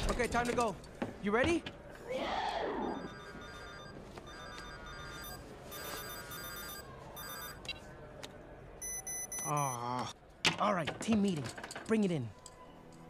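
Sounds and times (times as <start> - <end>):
electronic phone ringtone: 2.9 - 7.6, 8.8 - 9.8.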